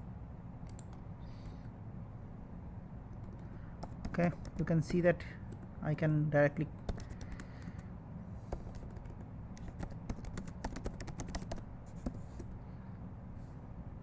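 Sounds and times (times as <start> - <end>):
low steady hum: 0.0 - 14.0
keyboard typing clicks: 0.6 - 1.0, 3.1 - 5.7, 6.8 - 7.8, 8.6 - 12.5.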